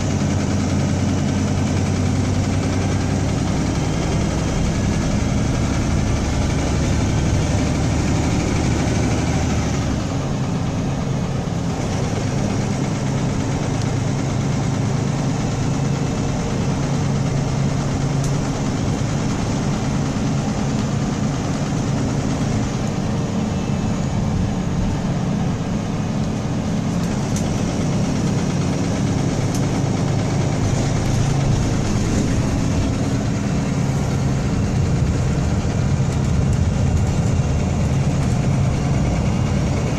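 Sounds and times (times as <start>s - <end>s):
bus diesel engine humming: 0.0s - 39.9s.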